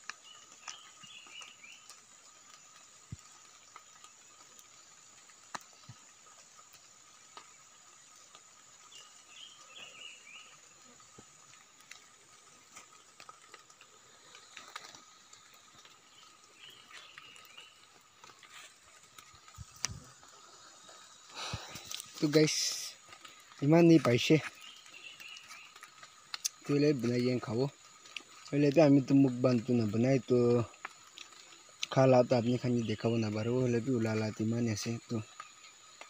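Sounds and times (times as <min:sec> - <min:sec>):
bird chirps: 0:00.1 - 0:02.0, 0:08.8 - 0:11.0, 0:15.5 - 0:18.7, 0:23.6 - 0:27.6.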